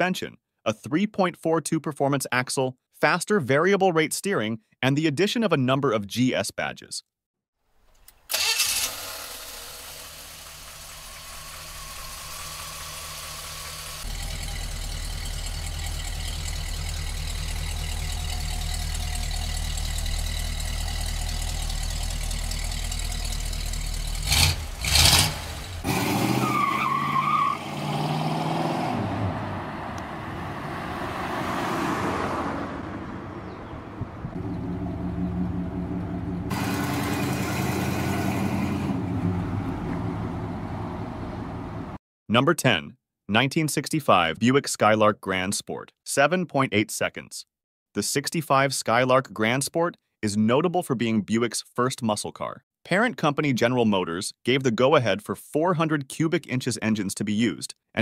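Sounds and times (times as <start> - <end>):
car engine starting and idling: 8.1 - 26.8, 27.7 - 42.0
engine revving blips: 8.4 - 42.0.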